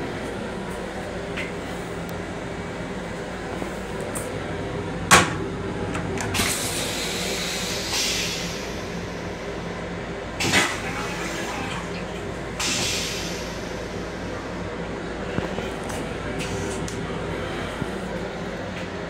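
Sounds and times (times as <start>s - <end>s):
railcar hum: 0.0s - 19.0s
toilet flush clunk: 5.1s - 6.8s, 10.4s - 13.2s.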